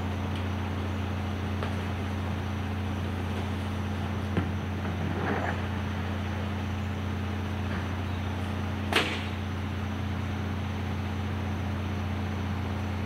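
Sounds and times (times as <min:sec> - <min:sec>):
garbage truck idling hum: 0:00.0 - 0:13.0.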